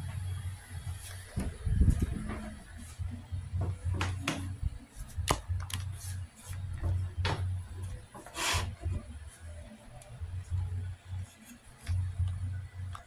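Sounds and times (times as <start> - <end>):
low hum: 0.0 - 13.0
fabric rubbing on microphone: 0.8 - 3.3
scrape: 8.3 - 8.8.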